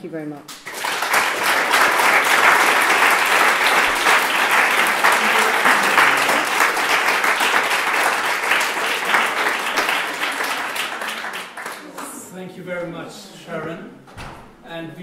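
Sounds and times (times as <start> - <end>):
audience applauding: 0.6 - 12.3.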